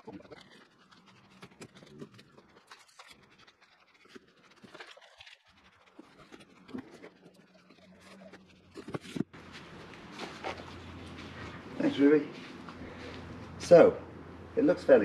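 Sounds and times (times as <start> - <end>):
plastic and cardboard rustling: 0.0 - 11.6.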